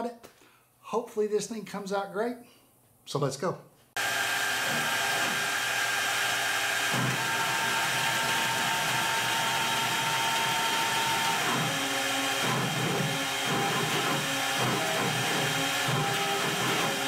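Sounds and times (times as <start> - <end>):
router spindle high whine: 4.0 - 17.0
stepper motor steady tone: 4.0 - 17.0.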